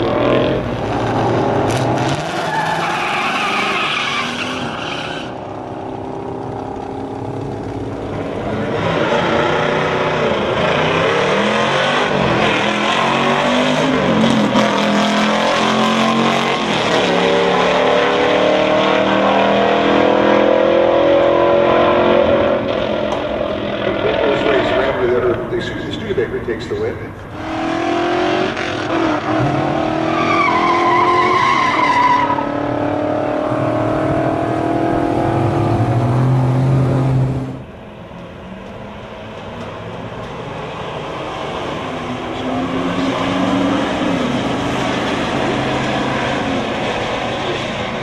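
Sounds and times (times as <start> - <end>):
engines revving at full throttle: 0.0 - 2.9, 5.2 - 48.0
tire squeal: 1.7 - 5.5, 29.4 - 32.7.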